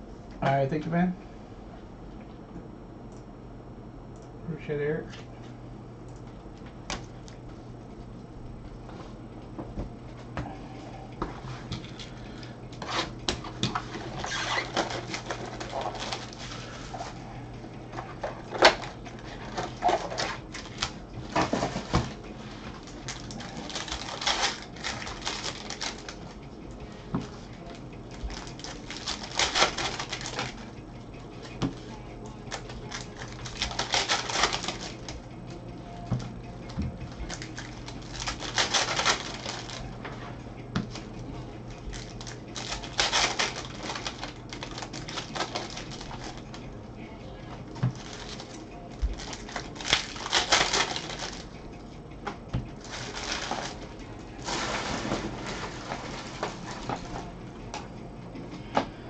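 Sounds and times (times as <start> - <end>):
wrapper crinkling: 13.8 - 17.1, 18.0 - 26.4, 27.3 - 30.7, 32.5 - 35.2, 37.2 - 39.9, 41.8 - 46.7, 47.9 - 51.5, 52.8 - 57.3.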